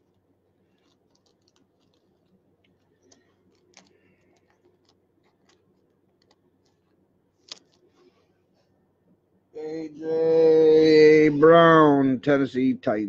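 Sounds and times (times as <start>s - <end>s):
plastic sleeve crinkling: 0.0s - 8.3s.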